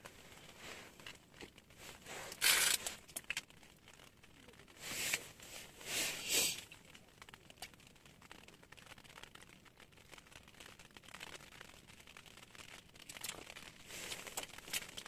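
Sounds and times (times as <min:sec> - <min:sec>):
fishing rod rustling scrapes: 0:00.2 - 0:03.1, 0:04.8 - 0:06.6, 0:13.9 - 0:15.0.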